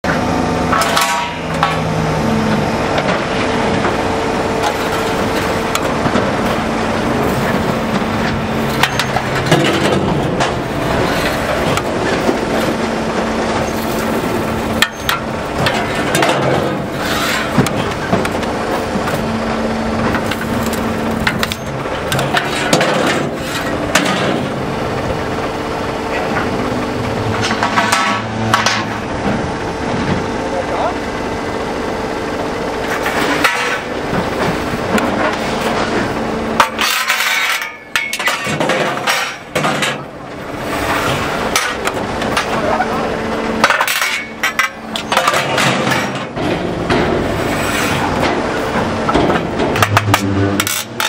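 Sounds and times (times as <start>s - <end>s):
scrap shear humming: 0.1s - 51.0s
steel shearing cracks and clanks: 0.7s - 1.8s, 36.6s - 40.1s, 43.6s - 48.4s, 49.2s - 51.0s
steel sections clattering: 4.6s - 12.8s, 20.0s - 24.6s, 36.6s - 42.8s, 43.6s - 51.0s.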